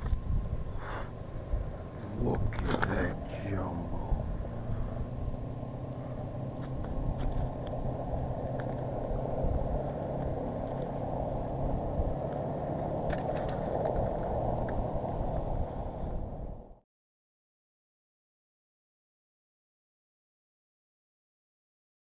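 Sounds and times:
wind rumble on microphone: 0.0 - 16.8
faint clicks of handling gear: 6.6 - 8.9, 9.8 - 11.0.

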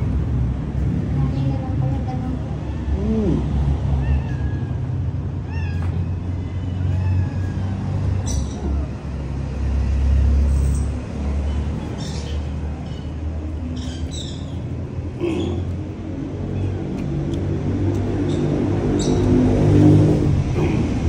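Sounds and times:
high animal calls: 15.2 - 15.8.

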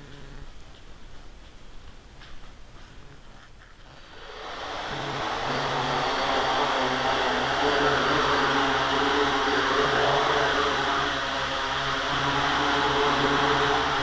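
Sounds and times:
drone motors whirring: 3.9 - 14.0.

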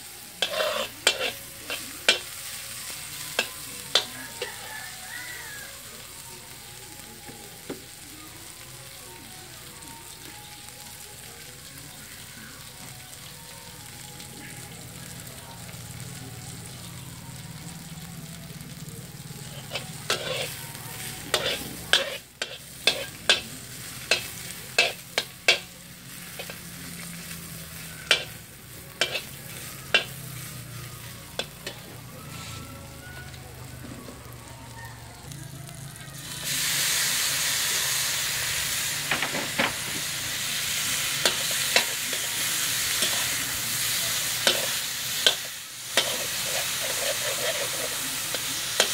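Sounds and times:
food sizzling in a wok: 0.0 - 48.9
metal spatula scraping wok: 0.3 - 4.8, 19.6 - 32.6, 39.3 - 48.9.

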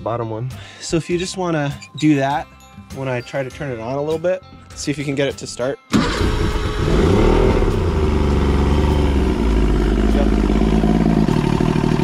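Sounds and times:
outboard engine running: 6.1 - 12.0.

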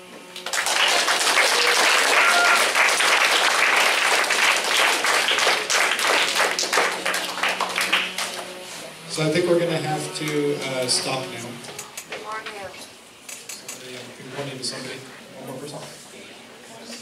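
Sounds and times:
crowd applauding: 0.3 - 8.8.

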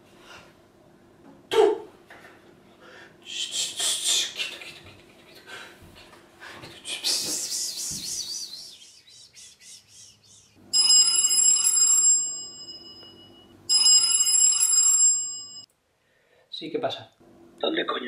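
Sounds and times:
mobile phone ringtone: 10.7 - 15.7.

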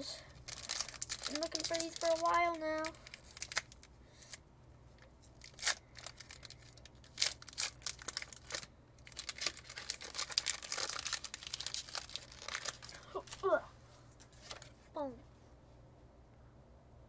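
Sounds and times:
foil crinkling: 0.3 - 4.4, 5.0 - 13.5
foil pack tearing: 0.4 - 4.4, 5.4 - 13.4.

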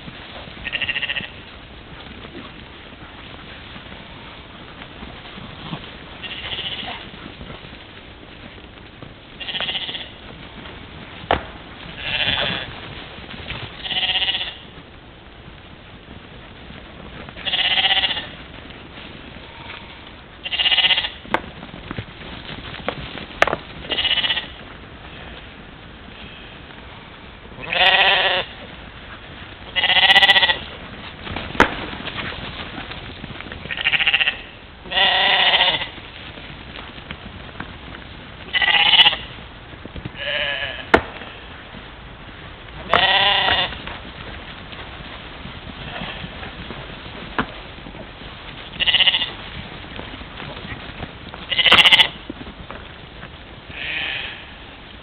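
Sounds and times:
sheep bleating: 0.6 - 1.4, 6.2 - 7.1, 9.4 - 10.2, 12.0 - 12.7, 13.8 - 14.7, 17.4 - 18.4, 19.4 - 21.2, 23.9 - 24.6, 27.6 - 28.6, 29.7 - 30.7, 33.7 - 36.0, 38.5 - 39.3, 40.2 - 41.4, 42.9 - 43.8, 48.8 - 49.4, 51.5 - 52.2, 53.7 - 54.6.

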